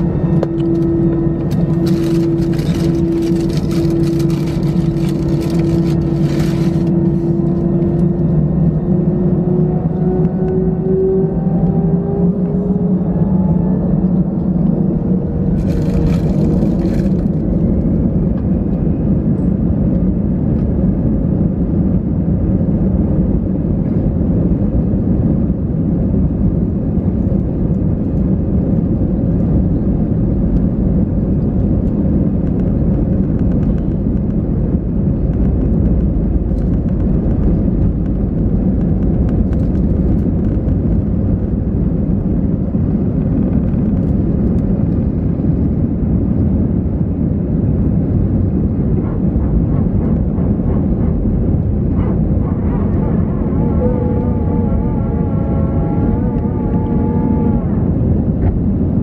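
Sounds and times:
rising engine tone: 0.0s - 19.5s, 47.8s - 59.0s
aircraft engine rumble: 0.0s - 59.0s.

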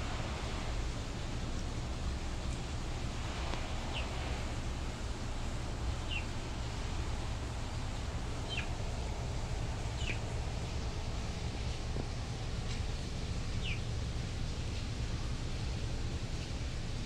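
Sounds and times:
low background rumble: 0.0s - 17.0s
bird chirping: 6.0s - 6.3s, 8.4s - 8.7s, 10.0s - 10.3s, 13.6s - 13.8s.

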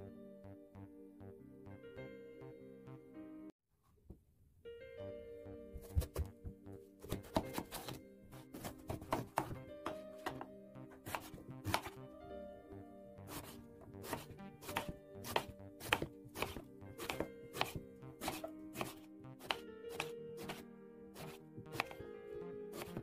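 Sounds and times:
soft background music: 0.0s - 3.6s, 4.6s - 23.0s
knife chopping on wooden board: 5.8s - 6.3s, 7.0s - 10.4s, 11.0s - 12.0s, 13.3s - 20.6s, 21.2s - 22.0s, 22.8s - 23.0s.

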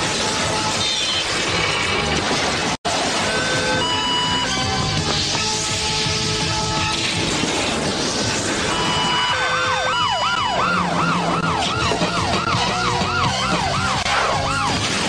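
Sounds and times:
rushing noise: 0.0s - 15.0s
wailing cartoon siren: 3.2s - 4.9s, 8.7s - 14.8s.

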